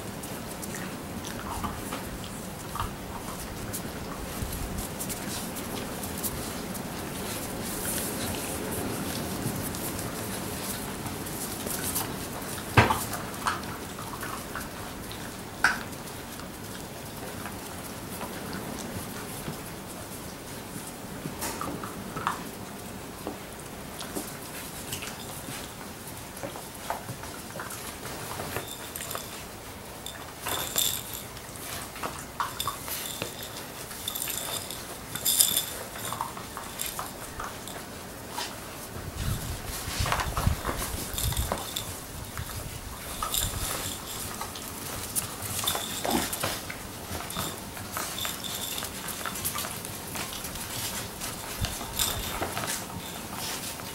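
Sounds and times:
puppy paws clicking and scuffling: 0:00.0 - 0:53.9
high metallic jingling: 0:28.2 - 0:38.0, 0:40.3 - 0:53.6.

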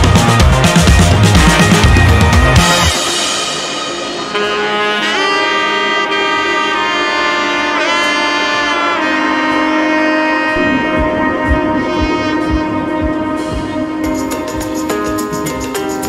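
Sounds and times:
sliding lead melody: 0:00.0 - 0:16.0
low beat: 0:10.4 - 0:16.0.

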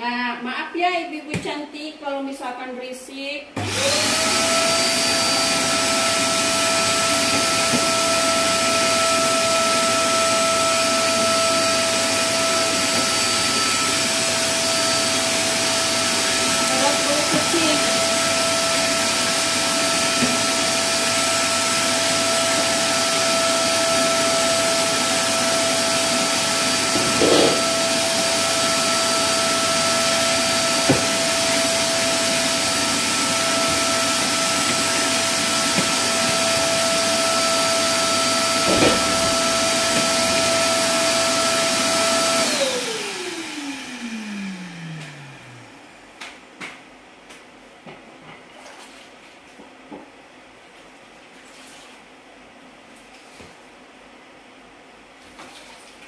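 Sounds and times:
vacuum cleaner running: 0:03.6 - 0:46.8.

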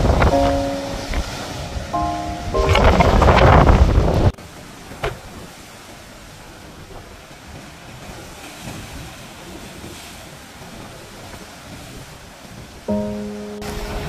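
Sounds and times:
wind buffeting microphone: 0:00.0 - 0:04.4
surf surging and foaming: 0:00.0 - 0:14.0.

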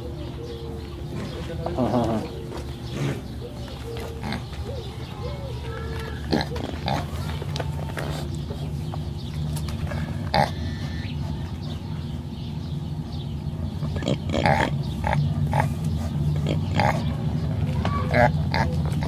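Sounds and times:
pig grunting: 0:00.0 - 0:08.9, 0:09.8 - 0:12.2, 0:13.6 - 0:19.0
steady low drone: 0:00.0 - 0:19.0.

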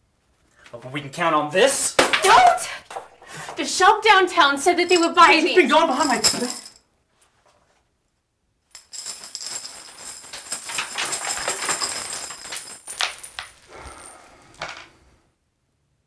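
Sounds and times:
small hard objects rattling: 0:04.9 - 0:06.8, 0:08.8 - 0:13.7.

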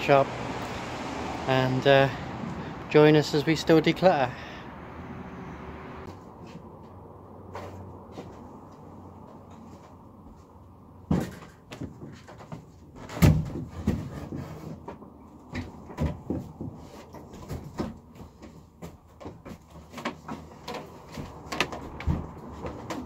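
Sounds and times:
cupboards bumping and knocking: 0:11.0 - 0:23.0.

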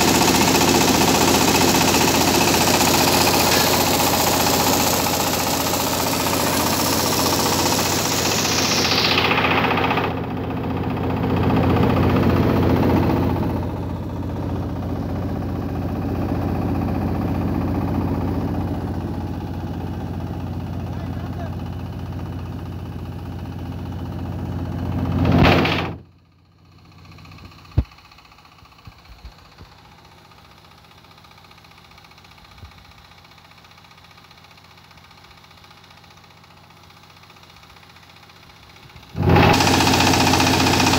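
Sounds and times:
machine rattling and rushing: 0:00.0 - 0:19.9, 0:24.8 - 0:26.1, 0:37.8 - 0:40.9
low engine drone: 0:00.0 - 0:26.1, 0:39.0 - 0:40.9.

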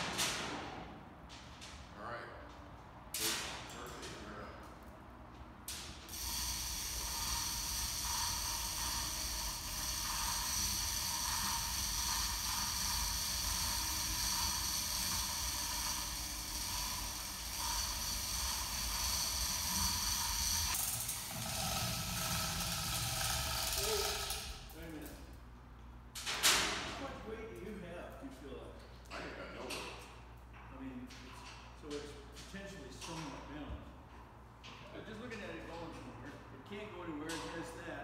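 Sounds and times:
electric chain hoist running: 0:06.1 - 0:24.8.

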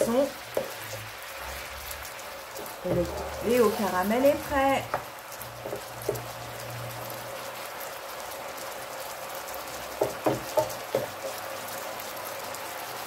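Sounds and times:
food sizzling in a frying pan: 0:00.0 - 0:13.0
utensil knocking against pan: 0:02.8 - 0:03.2, 0:04.9 - 0:06.2, 0:10.0 - 0:11.2.

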